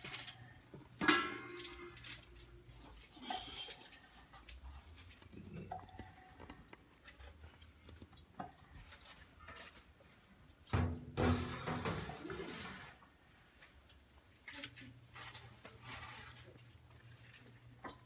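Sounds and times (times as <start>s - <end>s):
cookware clattering: 0.9s - 2.4s.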